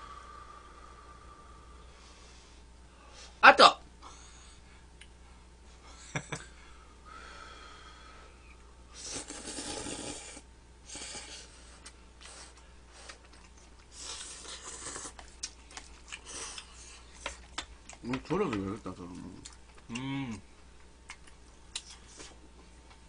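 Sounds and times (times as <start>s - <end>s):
people slurping noodles: 9.0s - 11.5s, 13.9s - 15.2s
wet chewing clicks: 20.8s - 22.3s.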